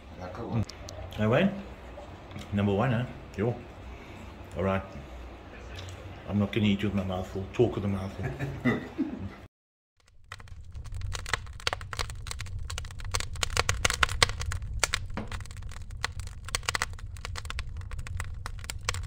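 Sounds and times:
wood fire crackling and popping: 0:10.0 - 0:19.0.

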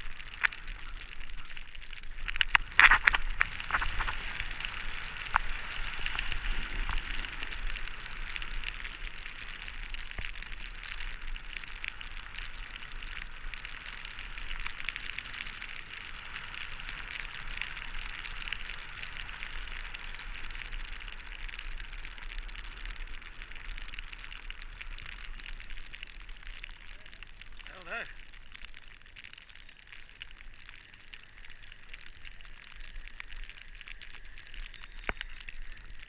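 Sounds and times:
snowboard sliding over snow: 0:02.6 - 0:08.6.

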